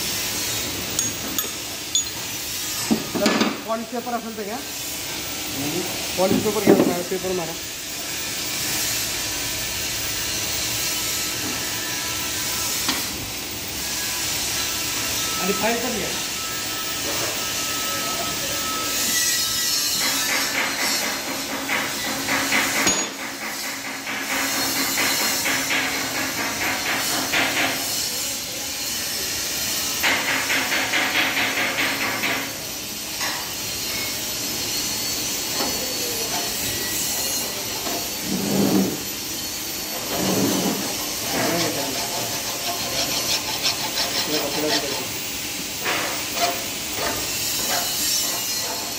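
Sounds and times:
metal being filed by hand: 0:13.9 - 0:32.6, 0:34.7 - 0:48.9.

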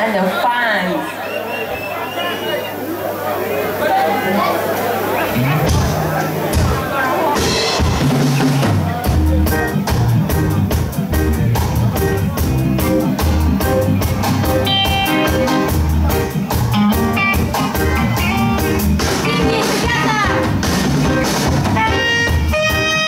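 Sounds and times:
live band playing: 0:01.1 - 0:23.0
drum kit steady beat: 0:05.3 - 0:23.0.

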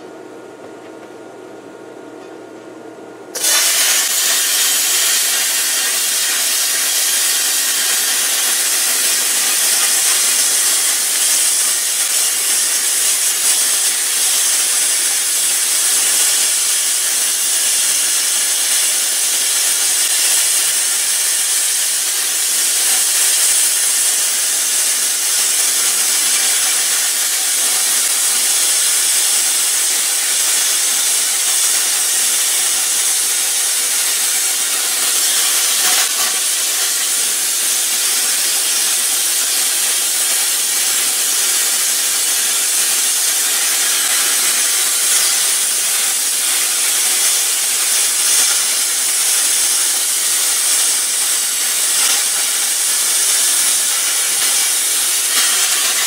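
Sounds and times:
plasma cutter hissing: 0:03.3 - 0:56.0.

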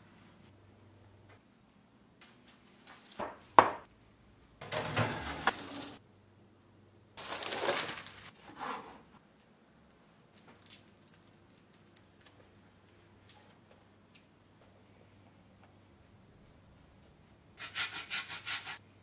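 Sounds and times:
kitchen handling noise: 0:04.6 - 0:06.0.

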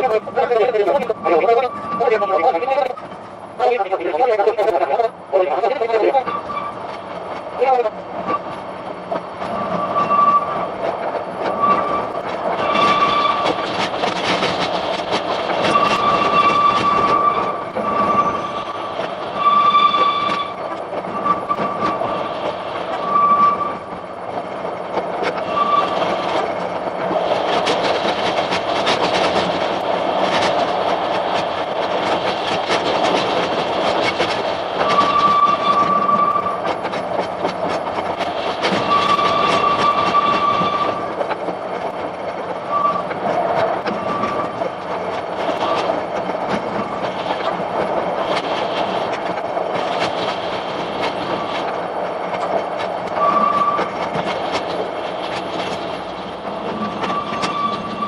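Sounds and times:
train wheels rumbling and rattling: 0:00.0 - 0:58.0
high wheel squeal: 0:06.2 - 0:06.8, 0:09.6 - 0:10.6, 0:11.5 - 0:13.6, 0:15.6 - 0:22.1, 0:23.0 - 0:23.8, 0:25.4 - 0:26.2, 0:34.8 - 0:36.6, 0:38.7 - 0:41.0, 0:42.7 - 0:43.1, 0:53.2 - 0:54.0, 0:56.7 - 0:58.0.

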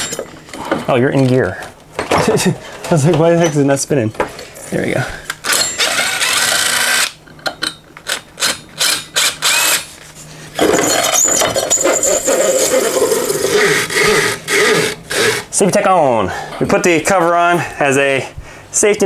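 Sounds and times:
power tool running: 0:05.4 - 0:07.2, 0:08.1 - 0:09.9, 0:10.7 - 0:15.6.

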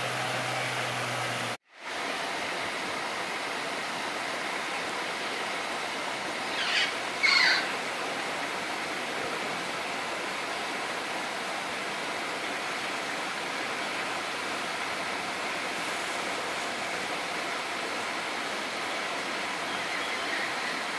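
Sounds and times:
rushing outdoor background noise: 0:00.0 - 0:20.9
bird calls falling in pitch: 0:06.6 - 0:07.7.

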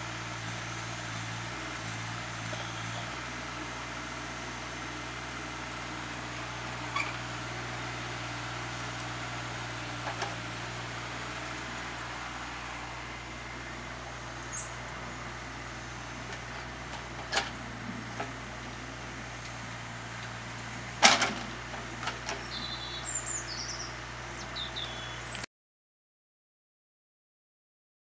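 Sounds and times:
excavator diesel engine running: 0:00.0 - 0:25.5.

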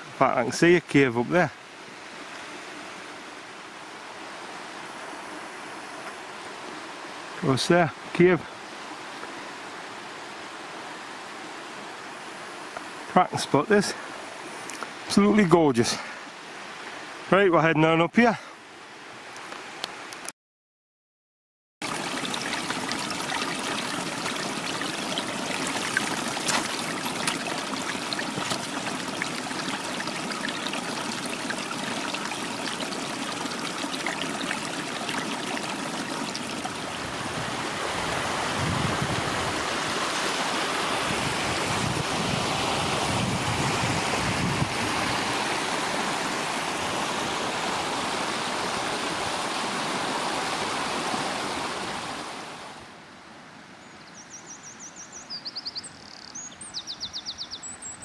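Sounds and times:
stream rushing over rocks: 0:00.0 - 0:20.2, 0:21.8 - 0:53.7.

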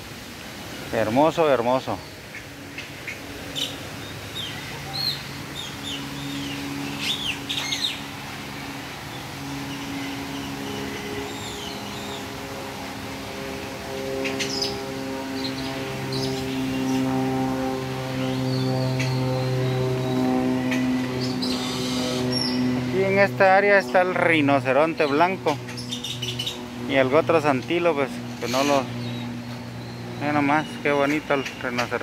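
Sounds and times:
small birds chirping: 0:00.9 - 0:32.0
sustained music chord: 0:08.0 - 0:25.6.

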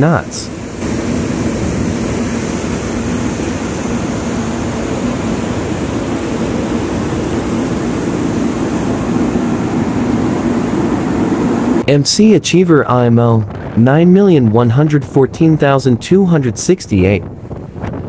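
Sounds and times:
wind rushing: 0:00.0 - 0:12.0, 0:17.1 - 0:18.0
churning wake water: 0:00.0 - 0:18.0
ship engine low hum: 0:00.0 - 0:18.0.

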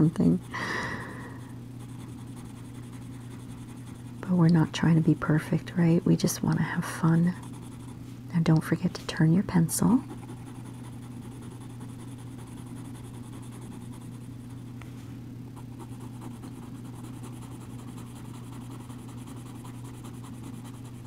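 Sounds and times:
steady low hum: 0:00.0 - 0:21.0
pencil scratching on paper: 0:01.8 - 0:05.4, 0:07.2 - 0:08.0, 0:09.9 - 0:14.3, 0:15.6 - 0:21.0.

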